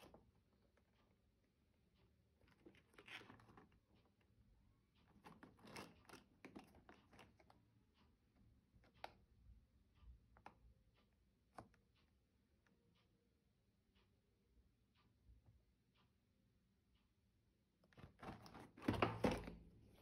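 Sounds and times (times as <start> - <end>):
cardboard carton rustling and ticking: 2.4 - 4.2, 5.1 - 7.7.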